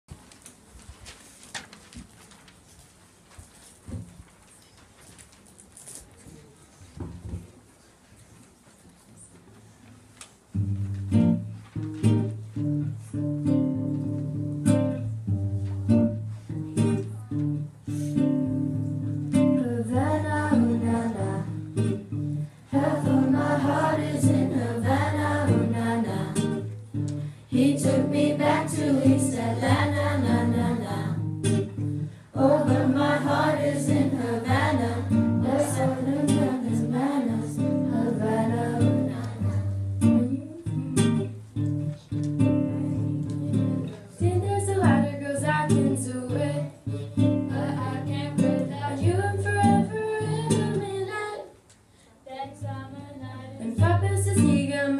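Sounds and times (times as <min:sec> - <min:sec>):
acoustic guitar strumming: 0:10.6 - 0:50.8
girls singing: 0:19.6 - 0:22.0, 0:22.7 - 0:26.8, 0:27.4 - 0:31.4, 0:32.3 - 0:40.7, 0:42.8 - 0:51.6.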